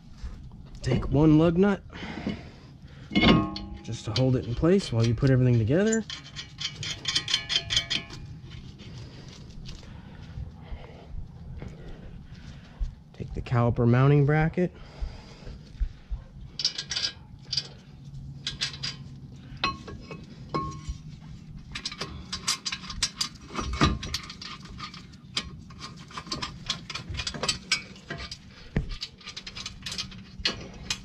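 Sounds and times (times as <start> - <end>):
metal parts clinking: 3.1 - 9.4, 16.5 - 31.0.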